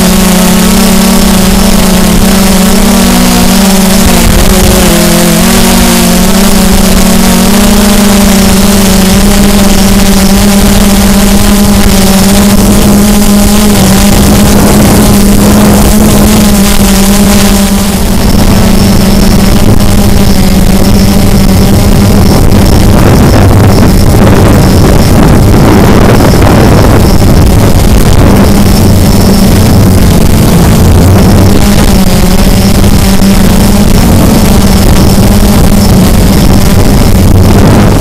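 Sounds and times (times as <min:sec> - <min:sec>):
drone motors buzzing: 0:00.0 - 0:38.0
rush of air: 0:17.7 - 0:38.0.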